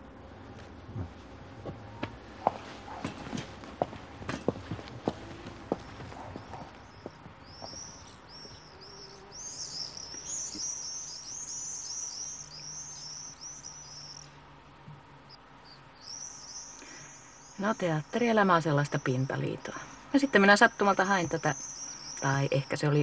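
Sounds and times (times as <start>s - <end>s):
bird chirping: 4.4s - 14.5s, 15.1s - 23.0s.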